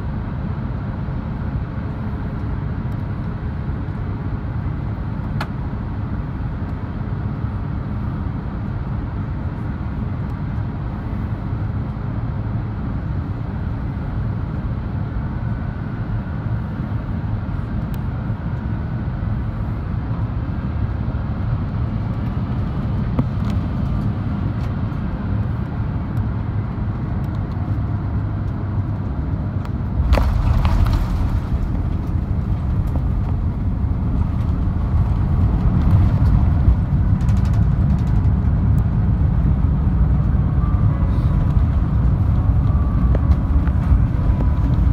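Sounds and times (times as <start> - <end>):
airflow and jet engine rumble: 0.0 - 44.9
tyres rolling on runway: 30.0 - 38.7.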